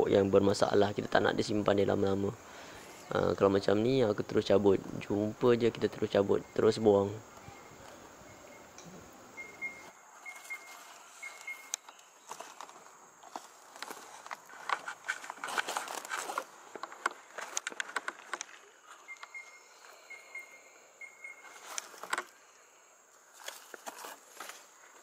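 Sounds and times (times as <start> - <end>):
leaves and stems rustling: 0.0 - 25.0.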